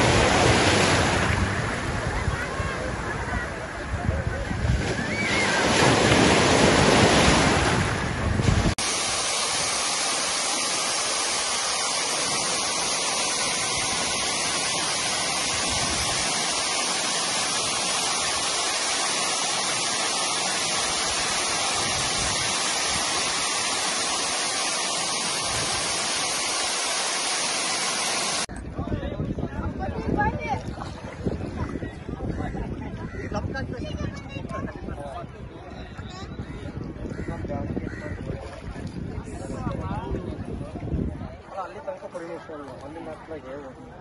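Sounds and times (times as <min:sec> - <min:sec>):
sea wave breaking: 0:00.0 - 0:03.5, 0:04.6 - 0:28.5
waterfall rushing over rock: 0:08.6 - 0:28.5.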